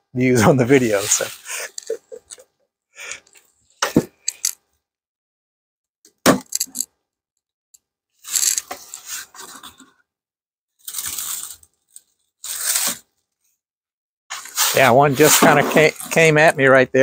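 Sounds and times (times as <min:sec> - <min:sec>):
cover scraping on wooden hive: 0:14.7 - 0:16.3.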